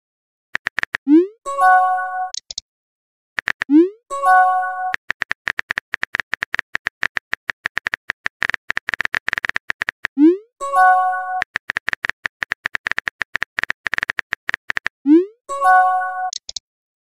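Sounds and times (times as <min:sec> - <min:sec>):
message chime: 0:04.1 - 0:05.0, 0:10.6 - 0:11.4, 0:15.5 - 0:16.4.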